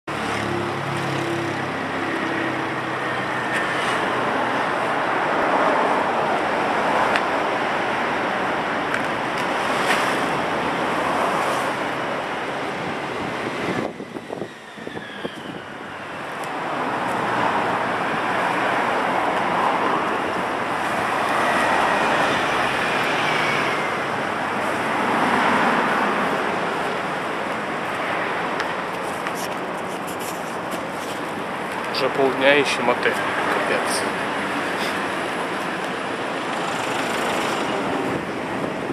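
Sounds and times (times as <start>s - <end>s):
cars running along road: 0.0s - 38.9s
wind on microphone: 9.5s - 28.2s, 37.1s - 38.9s.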